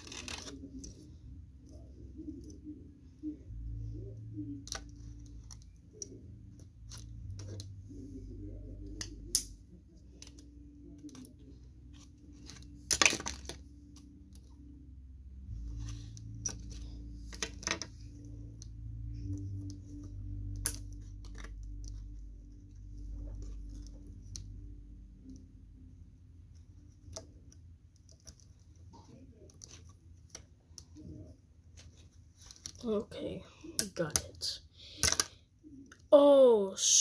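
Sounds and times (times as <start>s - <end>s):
plastic toy parts clicking: 35.0s - 36.0s.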